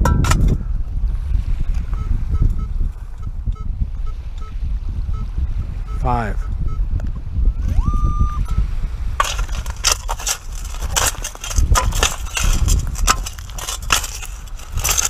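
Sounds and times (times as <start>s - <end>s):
metal scoop crunching into gravel: 9.2s - 15.0s.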